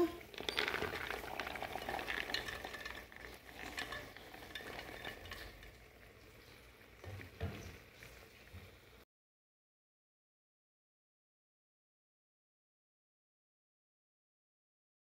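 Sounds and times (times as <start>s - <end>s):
beans pouring into metal pot: 0.2s - 5.9s.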